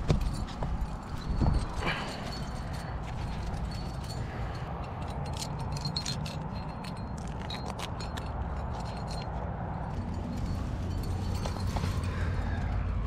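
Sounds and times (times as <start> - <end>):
metal climbing gear clinking: 0.0 - 13.0.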